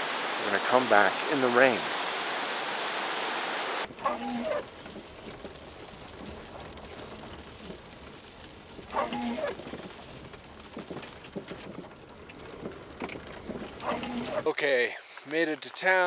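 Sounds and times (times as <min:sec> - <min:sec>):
short squeaks: 0:04.0 - 0:07.8, 0:08.8 - 0:14.5.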